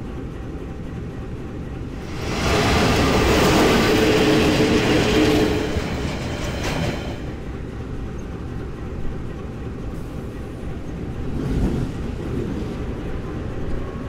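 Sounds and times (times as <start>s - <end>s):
diesel locomotive passing: 0.0s - 14.0s.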